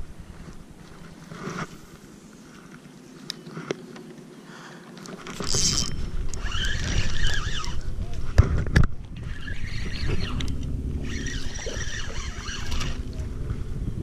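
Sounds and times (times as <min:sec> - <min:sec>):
camera handling and rubbing: 0:00.4 - 0:04.2
wind rumbling on microphone: 0:05.2 - 0:14.0.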